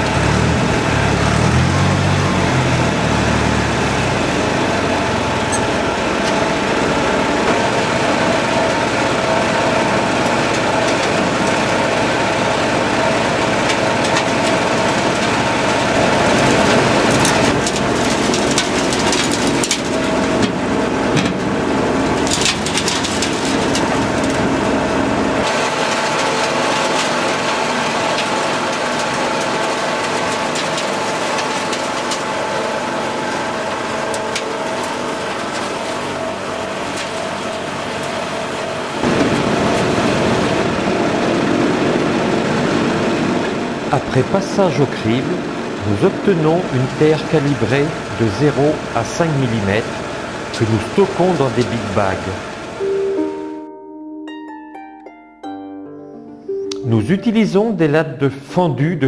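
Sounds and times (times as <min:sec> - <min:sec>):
low engine rumble: 0:00.0 - 0:53.8
vibrating soil screen rattling: 0:04.1 - 0:43.2
soil poured into steel hopper: 0:13.4 - 0:24.8, 0:25.4 - 0:41.3.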